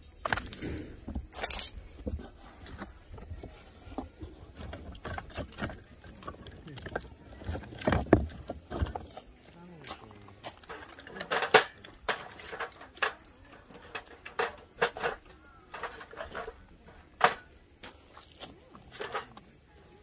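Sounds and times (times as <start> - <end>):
firewood knocking in metal pit: 2.0 - 9.3, 10.4 - 18.1, 18.7 - 19.4.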